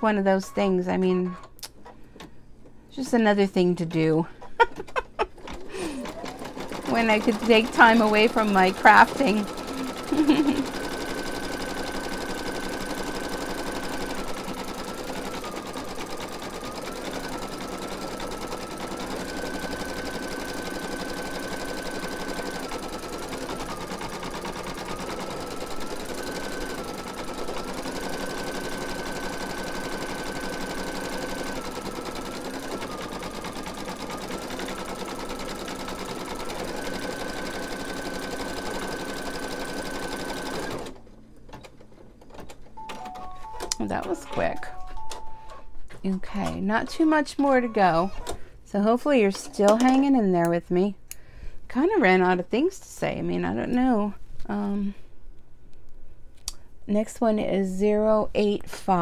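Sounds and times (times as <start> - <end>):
embroidery machine needle whine: 5.4 - 41.0.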